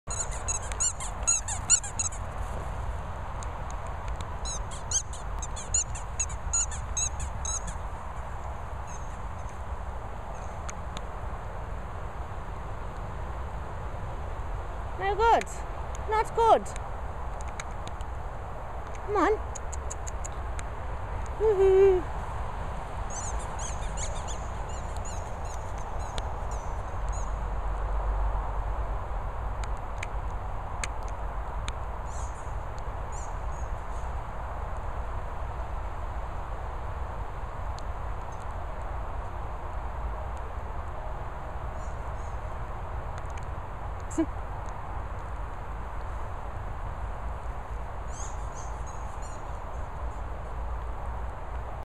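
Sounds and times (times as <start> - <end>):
dog toy squeaking: 0.1 - 2.3, 4.4 - 7.8, 23.1 - 26.1.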